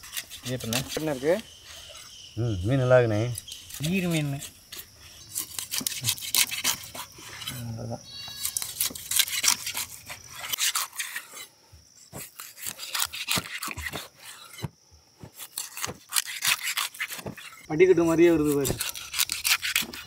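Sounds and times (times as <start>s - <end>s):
knife sawing through fish: 0.0s - 2.0s, 3.6s - 7.6s, 8.4s - 11.5s, 12.2s - 14.6s, 15.4s - 17.7s, 18.3s - 20.0s.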